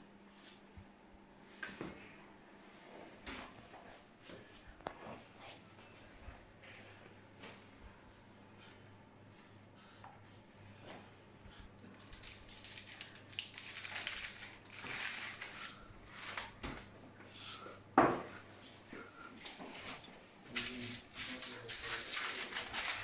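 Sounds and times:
baking parchment rustling: 0:11.5 - 0:17.0, 0:19.6 - 0:23.0.

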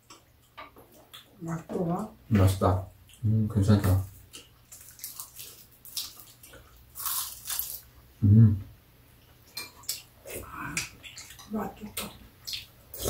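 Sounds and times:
chewing: 0:00.0 - 0:02.1, 0:04.0 - 0:07.9, 0:09.2 - 0:13.0.

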